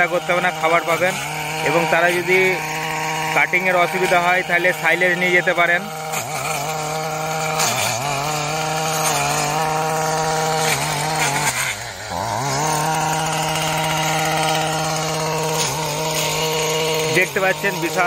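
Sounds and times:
small petrol engine running: 0.0 - 18.0.

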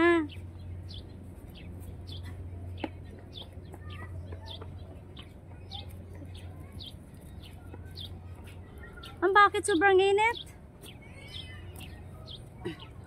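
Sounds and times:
bird chirping: 0.0 - 13.0.

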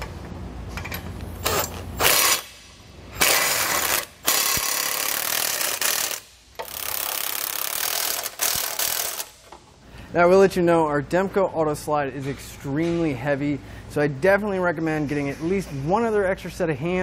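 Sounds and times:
cordless impact wrench bursts: 1.4 - 9.5.

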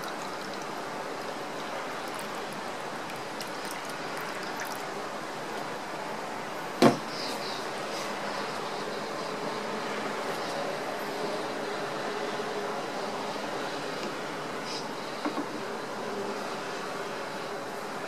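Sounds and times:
water pouring into plastic tank: 1.6 - 4.9.

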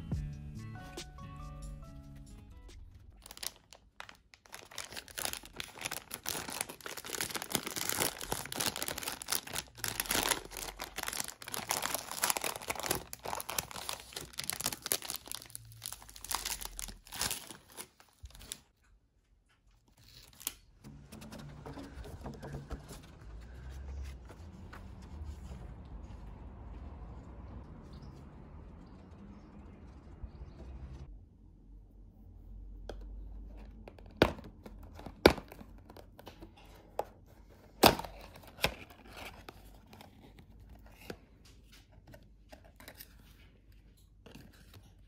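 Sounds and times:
plastic wrapper crinkling: 3.1 - 18.7, 19.9 - 20.7.

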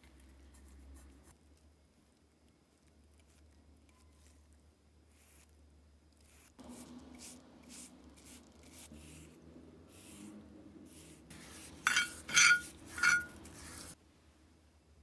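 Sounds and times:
paintbrush scrubbing metal: 6.3 - 14.0.

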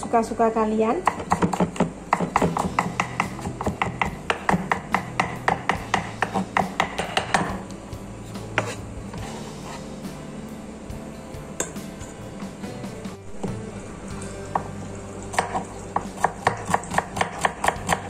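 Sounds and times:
cleaver chopping on wooden block: 1.1 - 7.6, 15.4 - 18.0.

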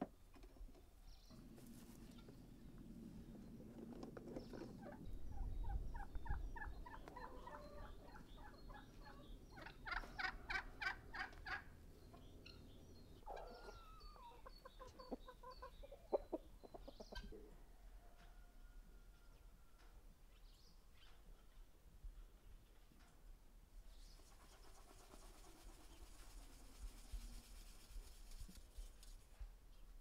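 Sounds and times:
chickens and guinea fowl clucking: 1.6 - 20.1.

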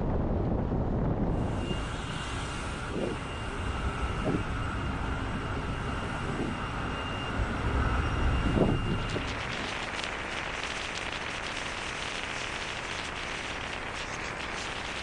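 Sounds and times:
low rumble: 0.0 - 12.0
faint steady whine: 0.0 - 15.0
wind: 0.0 - 15.0.

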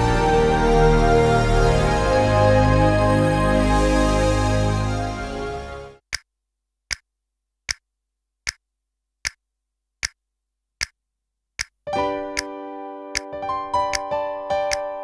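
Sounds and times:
music track: 0.0 - 6.0, 11.9 - 15.0.

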